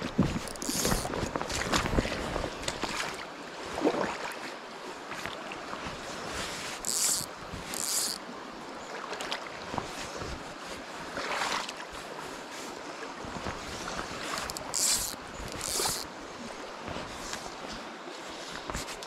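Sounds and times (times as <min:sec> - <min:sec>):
river water running over stones: 0:00.0 - 0:19.0
fly line swishing: 0:14.4 - 0:16.1.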